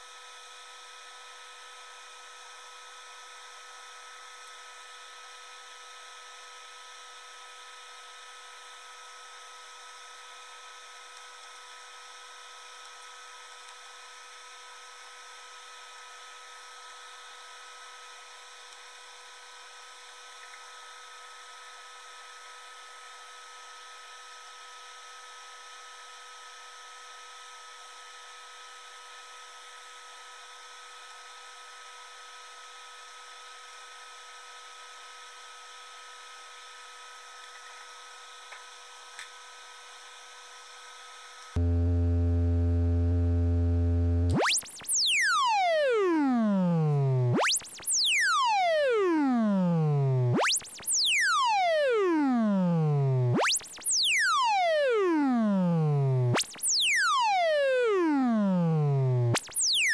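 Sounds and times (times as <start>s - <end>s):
small motor whirring and whining: 41.6s - 59.9s.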